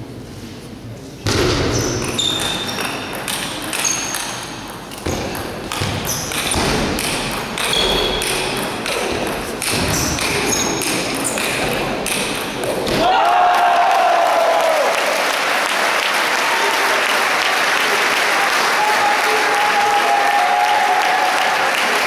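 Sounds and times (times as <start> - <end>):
shoes squeaking on floor: 1.7 - 6.6, 7.6 - 11.7
ping pong ball clicking: 2.0 - 12.8.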